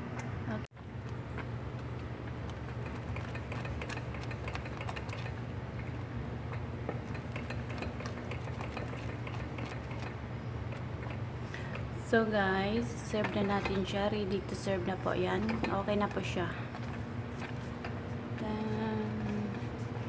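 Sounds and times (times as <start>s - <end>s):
steady low hum: 0.0s - 20.0s
wooden spatula scraping pot: 12.8s - 20.0s.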